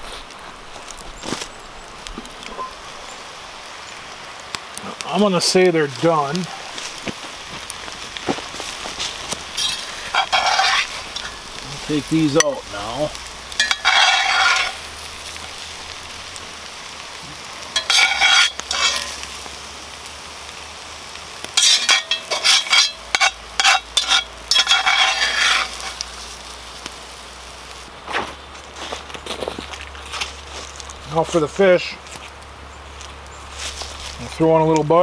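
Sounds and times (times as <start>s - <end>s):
oil sizzling in a pot: 0.0s - 28.0s
utensil scraping and stirring pot: 8.5s - 16.0s, 17.7s - 19.4s, 21.6s - 26.4s.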